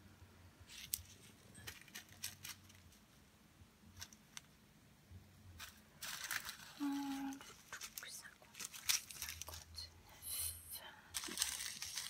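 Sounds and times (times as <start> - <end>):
crackly plastic rattle: 0.7 - 3.0, 5.6 - 9.9, 11.1 - 12.0.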